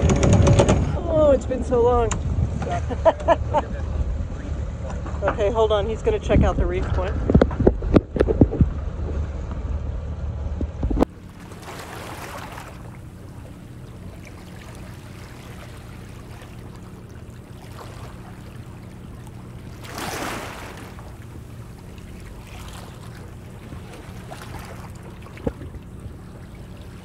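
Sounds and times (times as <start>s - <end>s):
steady low hum: 0.0s - 27.0s
wind rumbling on microphone: 0.0s - 27.0s
water lapping softly: 10.6s - 27.0s
water swashes: 10.6s - 27.0s.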